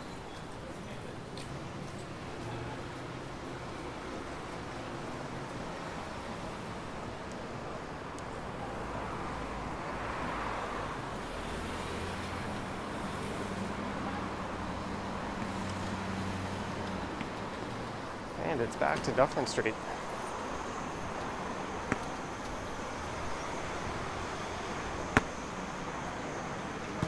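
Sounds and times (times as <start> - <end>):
city street traffic: 0.0 - 27.0.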